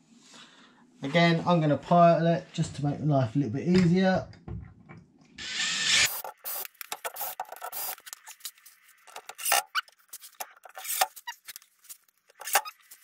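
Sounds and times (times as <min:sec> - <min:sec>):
cordless drill drilling: 0:05.4 - 0:08.0
clicks taps and scrapes of parts: 0:06.2 - 0:13.0.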